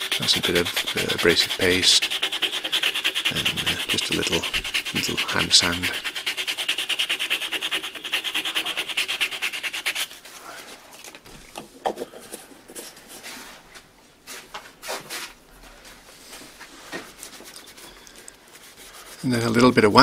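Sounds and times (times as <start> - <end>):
sanding wood rubbing strokes: 0.0 - 10.2, 18.5 - 19.8.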